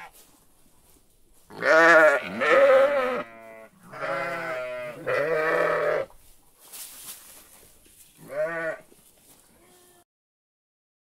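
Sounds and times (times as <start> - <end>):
sheep bleating: 1.5 - 6.1, 8.2 - 8.9, 9.6 - 10.0.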